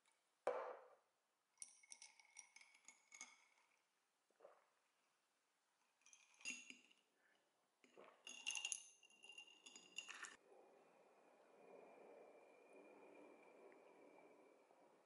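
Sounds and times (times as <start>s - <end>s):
glassware and tableware clinking: 6.0s - 7.1s, 7.9s - 10.4s.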